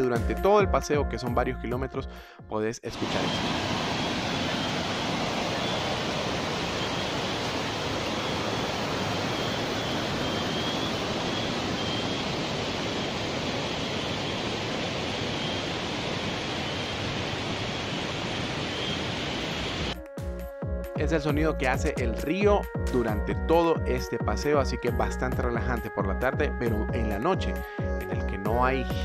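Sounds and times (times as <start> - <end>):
river flowing over stones: 3.0 - 19.9.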